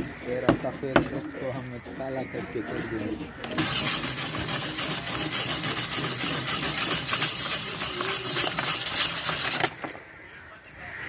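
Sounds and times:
ice shaving machine rasping: 0:01.9 - 0:09.8.

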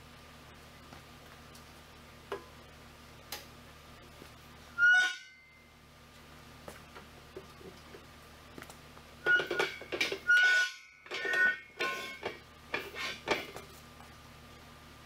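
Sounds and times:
metal clanks with bell-like ringing: 0:09.2 - 0:12.4
steel posts knocking and scraping: 0:09.2 - 0:13.7.

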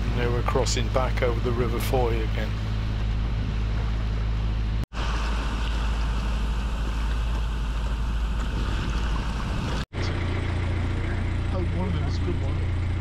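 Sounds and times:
water rushing along hull: 0:00.0 - 0:09.9
boat engine humming: 0:00.0 - 0:13.0.

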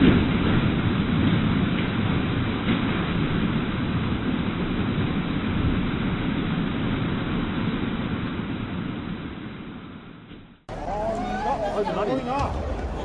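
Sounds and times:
floodwater rushing: 0:10.7 - 0:13.0.

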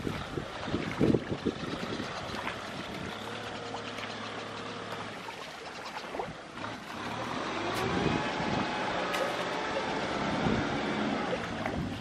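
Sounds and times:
wind on microphone: 0:00.0 - 0:03.9, 0:07.6 - 0:12.0
muddy water sloshing: 0:00.0 - 0:12.0
sharp splashes: 0:00.0 - 0:12.0.

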